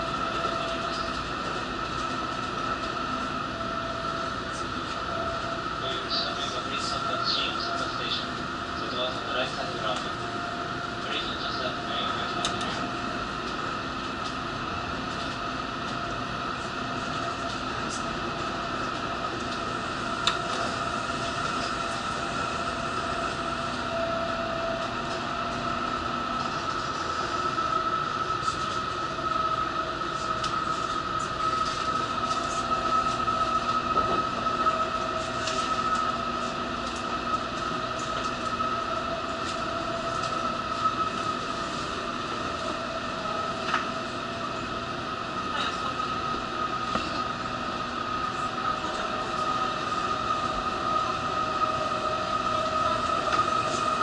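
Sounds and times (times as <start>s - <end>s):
high whine: 0.0s - 54.0s
train rumble and hiss: 0.0s - 54.0s.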